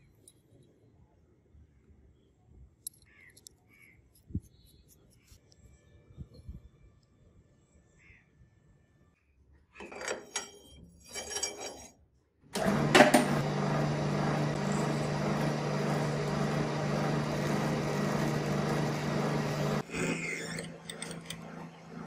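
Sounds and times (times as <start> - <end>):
metal lathe humming: 12.6 - 22.0.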